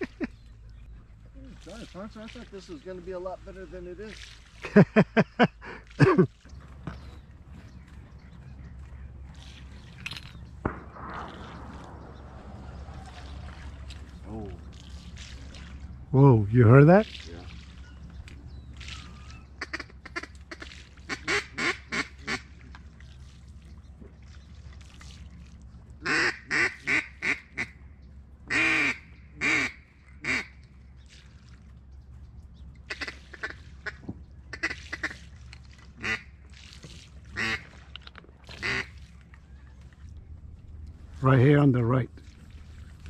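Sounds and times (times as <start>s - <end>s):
duck quacking: 19.6s - 22.5s, 26.0s - 27.7s, 28.5s - 30.5s, 32.9s - 35.2s, 36.0s - 36.3s, 37.4s - 37.6s, 38.6s - 38.9s.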